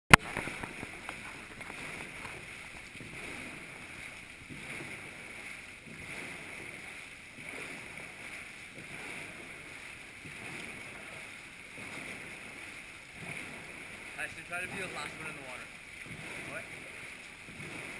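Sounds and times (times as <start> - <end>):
paddles churning water: 0.1 - 17.9.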